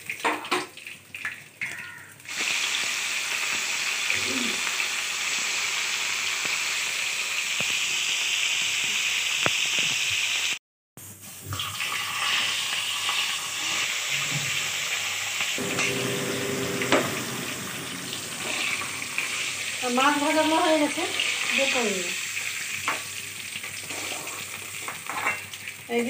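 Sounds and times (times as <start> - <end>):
fish frying in hot oil: 0.0 - 26.0.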